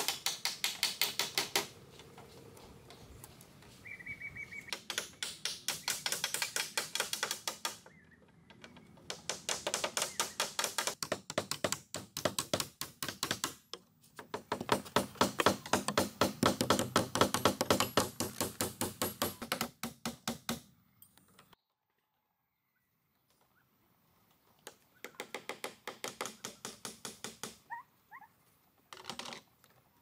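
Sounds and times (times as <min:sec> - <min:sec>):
hand tool knocking on wood: 0:14.2 - 0:20.6.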